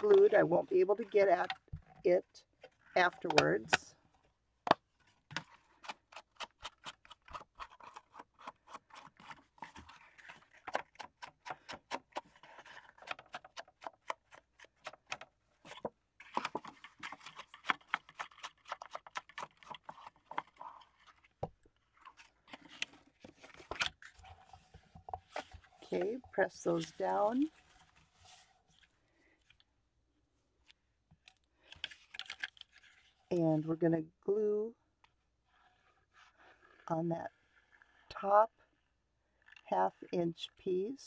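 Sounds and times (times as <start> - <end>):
rubbing and paper rustling: 5.0 - 29.6, 31.6 - 33.3.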